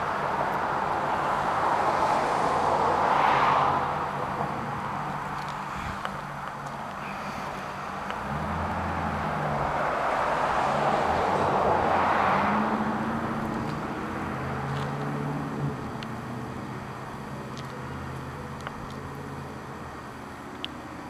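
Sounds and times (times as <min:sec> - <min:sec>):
low engine hum: 0:00.0 - 0:21.0
car passing by: 0:01.2 - 0:06.1, 0:07.2 - 0:16.7.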